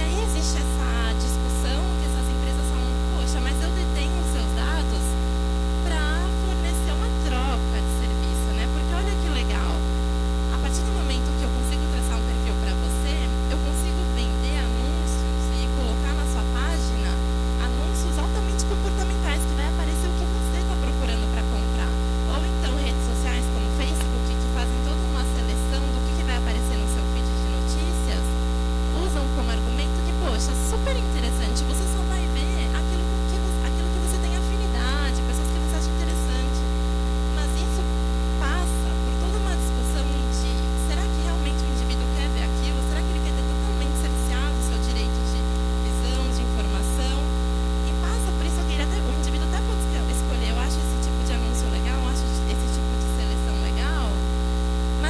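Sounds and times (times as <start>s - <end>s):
faint voice talking: 0.0s - 5.2s
electrical mains hum: 0.0s - 55.0s.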